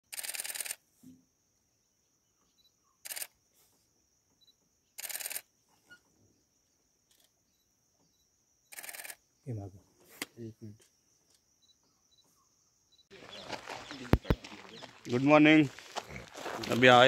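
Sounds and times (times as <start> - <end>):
camera shutter clicks: 0.1 - 0.8, 3.0 - 3.3, 5.0 - 5.4, 8.7 - 9.2.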